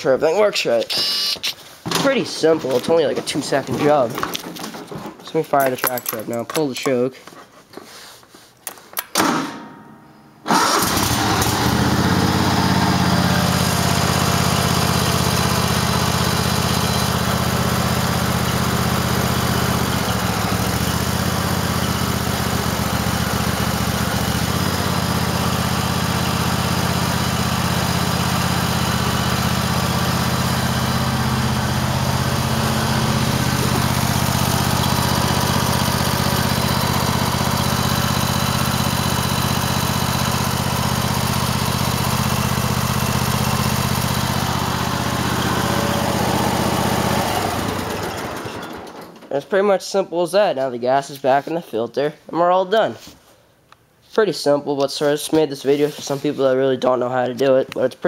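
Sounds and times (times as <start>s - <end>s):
engine idling: 10.5s - 49.0s.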